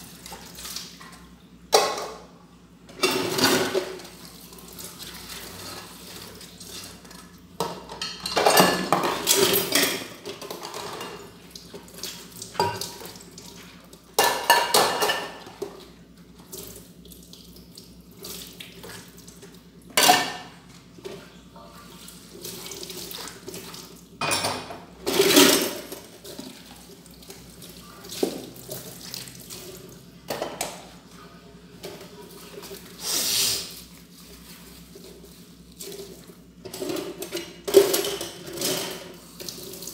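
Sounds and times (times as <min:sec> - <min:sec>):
water running from tap: 0:26.1 - 0:30.1.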